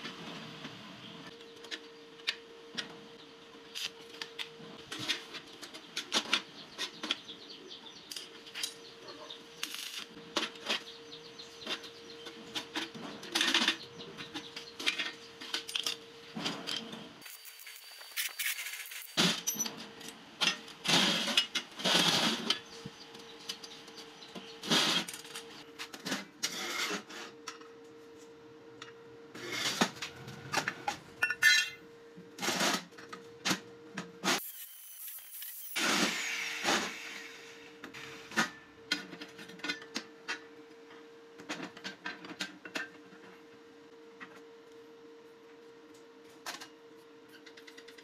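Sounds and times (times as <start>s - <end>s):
steel pieces clanking: 16.7s - 19.8s, 31.2s - 31.8s, 34.4s - 36.3s.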